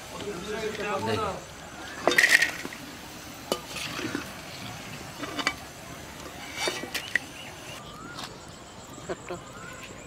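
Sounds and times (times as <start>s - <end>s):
frying oil sizzling: 0.0s - 7.8s.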